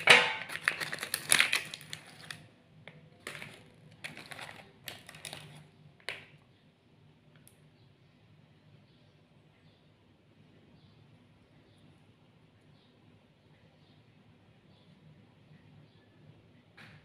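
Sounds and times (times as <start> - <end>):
plastic wrapper crinkling: 0.0 - 6.3.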